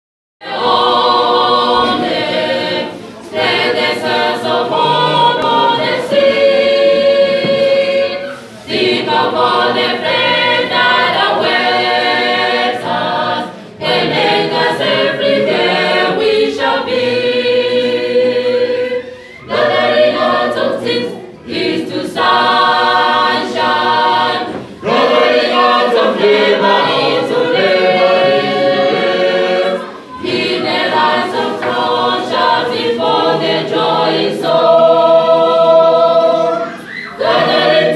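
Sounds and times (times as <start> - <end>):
mixed choir singing a cappella: 0.4 - 37.9.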